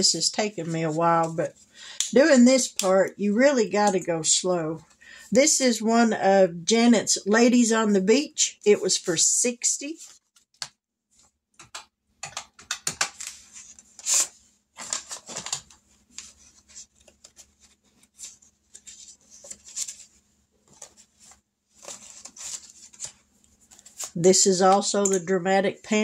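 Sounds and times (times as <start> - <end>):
paper rustling and crinkling: 13.0 - 24.2.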